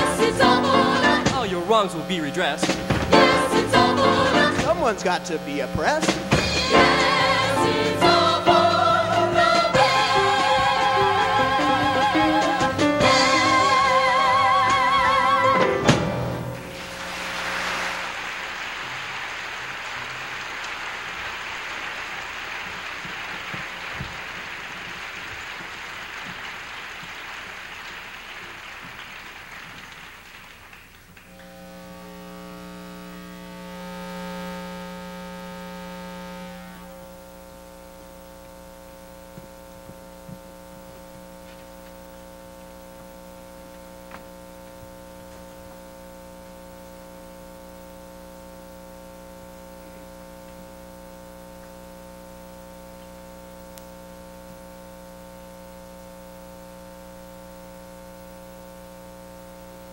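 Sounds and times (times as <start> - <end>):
electrical mains hum and buzz: 0.0 - 59.9
broad noise haze: 16.6 - 44.6.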